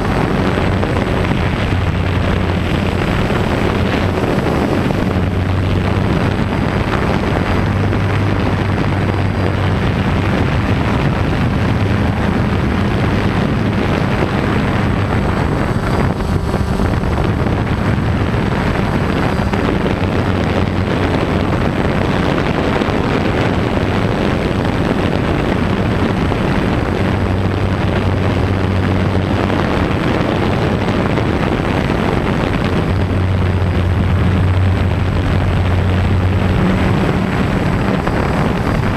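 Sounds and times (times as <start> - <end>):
quadcopter motors buzzing: 0.0 - 8.4, 9.1 - 22.8, 34.9 - 38.9.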